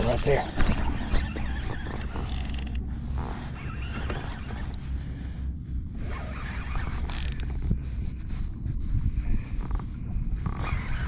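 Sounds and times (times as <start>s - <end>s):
fishing reel cranking: 0.0s - 2.8s, 6.4s - 7.5s
wind on microphone: 0.0s - 11.0s.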